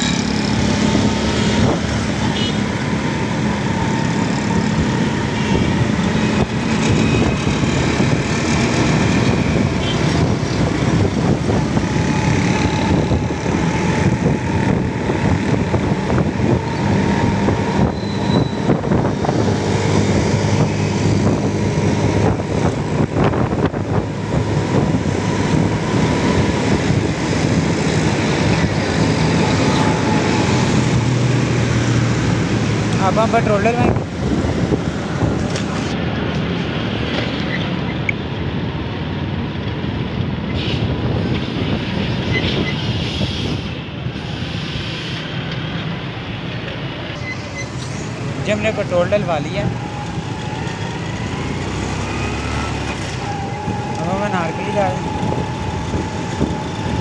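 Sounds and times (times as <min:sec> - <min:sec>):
passing traffic: 0:00.0 - 0:57.0
road and wind noise: 0:00.0 - 0:57.0.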